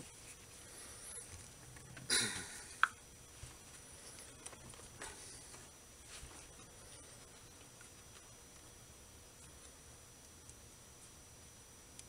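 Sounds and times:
hands rustling: 3.3 - 8.4.

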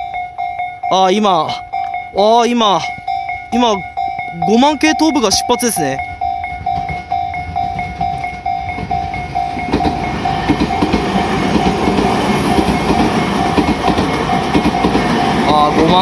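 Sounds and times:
level-crossing alarm bell ringing: 0.0 - 16.0
train wheels rumbling on track: 0.0 - 16.0.

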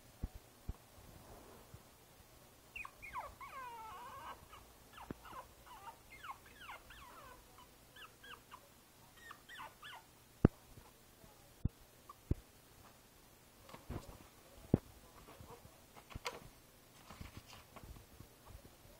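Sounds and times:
puppy whimpering: 2.8 - 8.6, 9.2 - 10.1.

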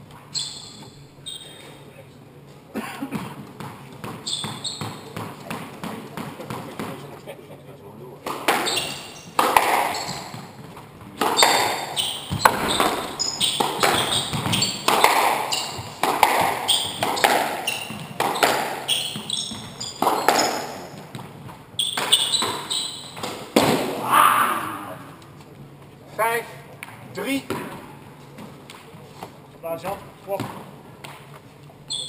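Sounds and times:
shoes squeaking on wooden floor: 0.2 - 1.7, 3.2 - 7.1, 8.5 - 23.3, 31.4 - 32.0
squash ball cracking off rackets: 8.2 - 24.0.

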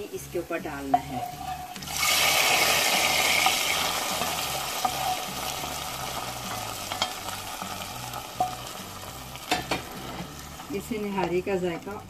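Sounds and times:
fried onions sizzling: 0.0 - 12.0
wooden spoon knocking pot: 0.8 - 1.9, 3.4 - 5.5.

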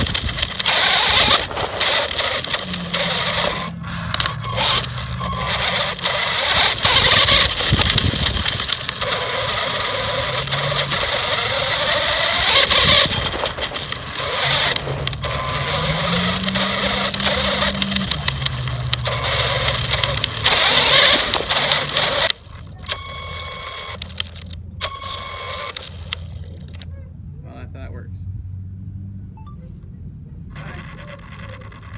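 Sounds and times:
tyres rushing over dirt: 0.0 - 22.8
electric motor whining: 0.0 - 26.8, 30.5 - 31.9.

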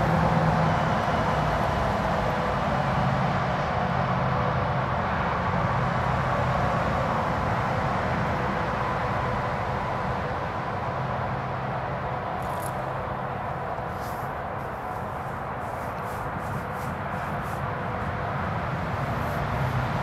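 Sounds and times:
steady mechanical drone: 0.0 - 20.0.

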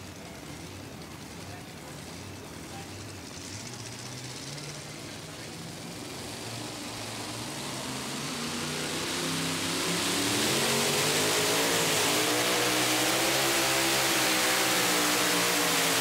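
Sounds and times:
truck engine working hard: 0.0 - 16.0.

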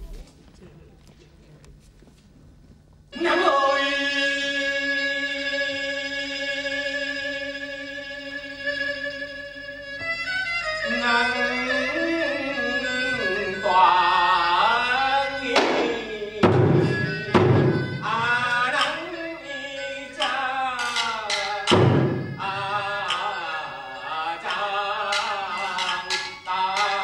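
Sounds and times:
person singing with vibrato: 3.1 - 10.0, 10.8 - 27.0
sharp percussion strikes: 15.5 - 19.2, 20.2 - 27.0.

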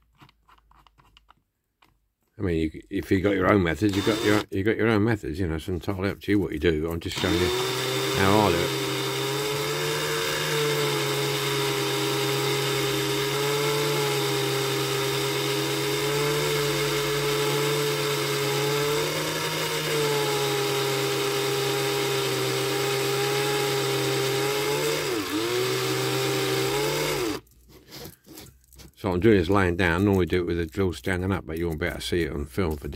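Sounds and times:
cordless drill running: 3.8 - 4.5, 7.1 - 27.4.

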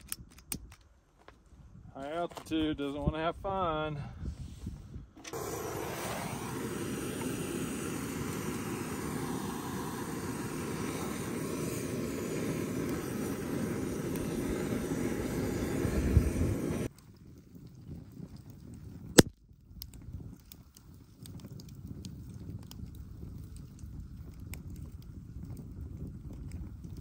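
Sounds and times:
gas torch hissing: 5.2 - 16.9.

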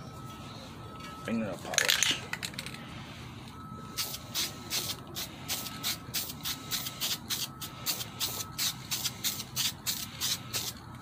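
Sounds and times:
spray-paint can hissing in bursts: 4.0 - 10.8.

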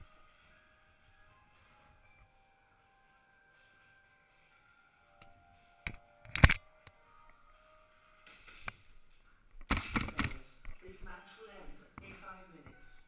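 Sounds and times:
faint background music: 0.0 - 13.0
airsoft gunfire cracks: 9.7 - 10.4.

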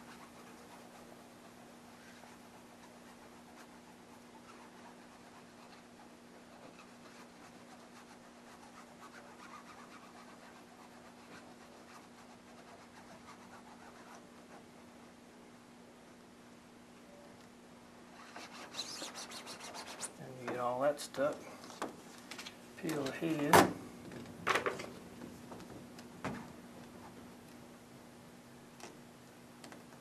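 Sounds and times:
squeegee scratching on vinyl: 0.0 - 14.7, 18.1 - 21.4.

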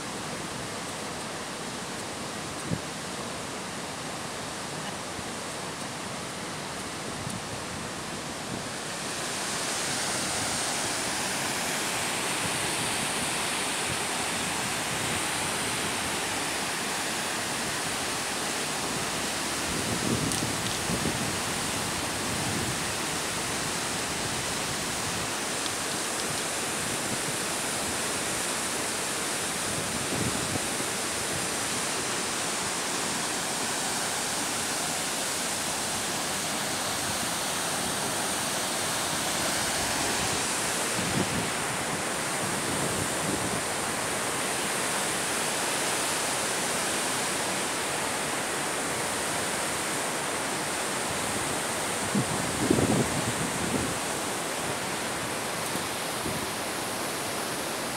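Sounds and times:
river rushing over boulders: 0.0 - 57.9.

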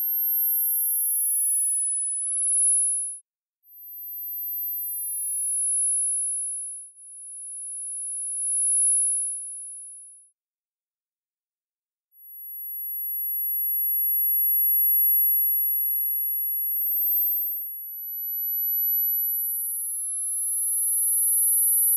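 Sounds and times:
high-pitched sine tones: 21.0 - 21.9.

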